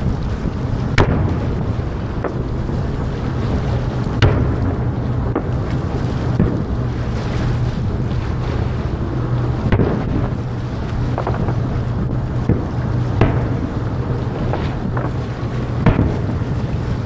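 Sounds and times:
distant fireworks booming: 0:00.0 - 0:17.0
low rumble: 0:00.0 - 0:17.0
small fireworks pops: 0:11.0 - 0:11.7, 0:14.4 - 0:16.4.

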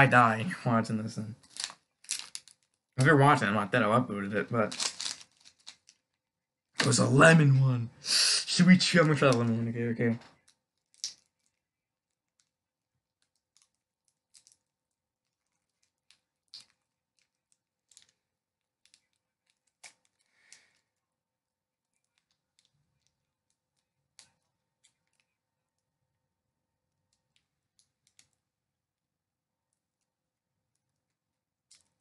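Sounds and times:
candy wrapper crinkling: 0:01.4 - 0:07.1, 0:08.9 - 0:20.9.

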